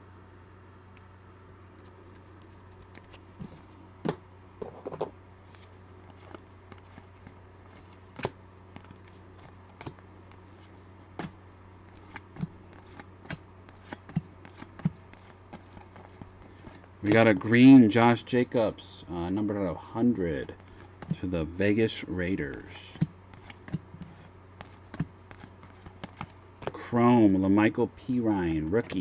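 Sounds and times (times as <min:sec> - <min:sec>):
steady low hum: 0:00.0 - 0:29.0
trading cards being flipped: 0:01.8 - 0:03.6, 0:04.6 - 0:17.4, 0:22.5 - 0:26.7.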